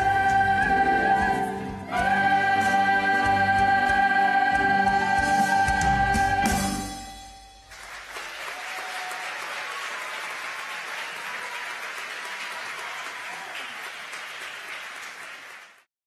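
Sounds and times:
choir chord: 0.0 - 7.6
audience applause: 7.7 - 15.9.

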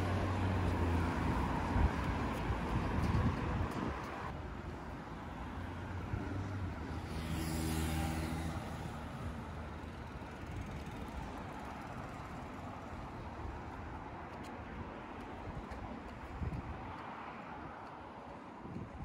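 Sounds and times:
steady outdoor rumble: 0.0 - 19.0
engine passing by: 5.6 - 11.6.

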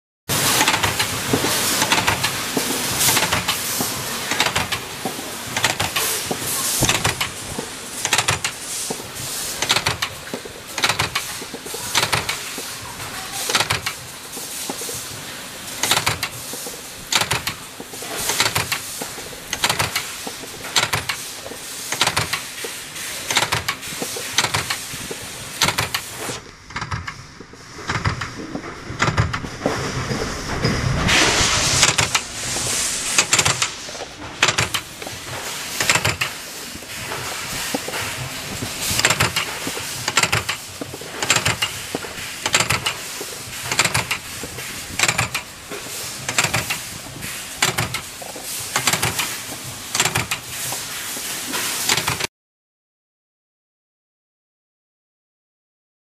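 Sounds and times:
machinery hiss and hum: 0.3 - 52.3
punch press stamping: 0.4 - 12.7, 13.4 - 14.0, 15.8 - 27.2, 27.8 - 28.4, 29.0 - 29.5, 31.8 - 46.9, 47.6 - 50.7, 51.8 - 52.3.

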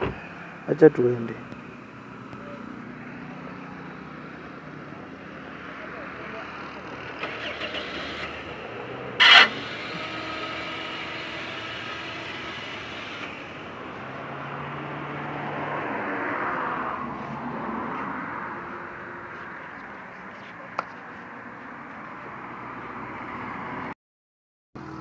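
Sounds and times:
car engine idling: 0.0 - 14.3.

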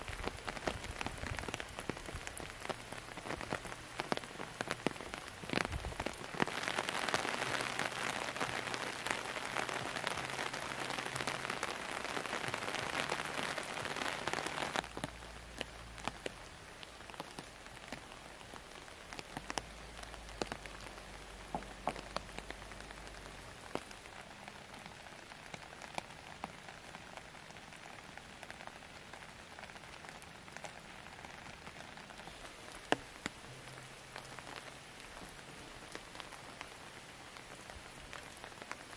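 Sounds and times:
raindrops clicking close by: 0.0 - 38.9
steady rainfall: 0.0 - 38.9.

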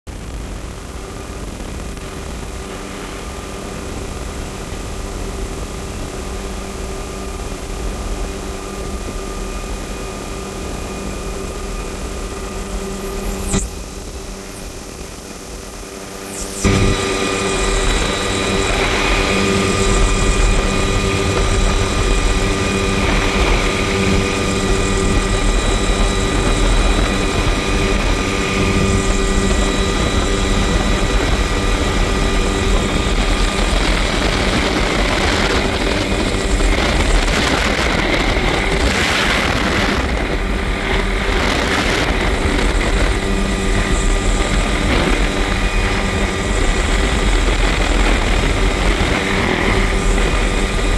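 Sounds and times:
helicopter rotor and engine: 0.1 - 50.9
wind buffeting: 16.6 - 50.9.

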